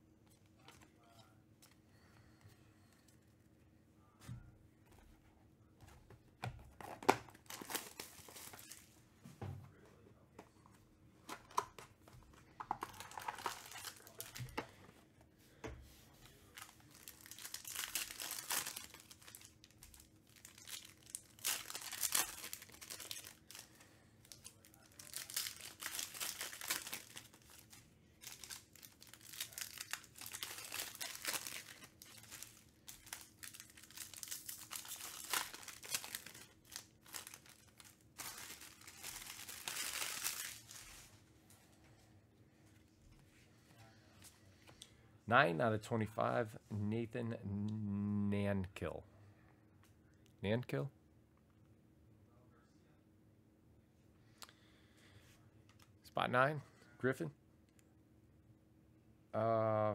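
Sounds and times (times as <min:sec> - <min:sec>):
foil wrappers crinkling and tearing: 0:06.8 - 0:08.9, 0:12.6 - 0:14.6, 0:16.4 - 0:41.1.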